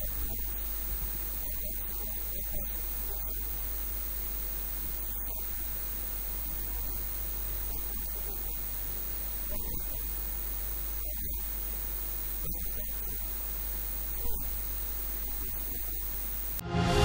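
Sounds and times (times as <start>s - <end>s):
electrical mains hum: 0.0s - 16.6s.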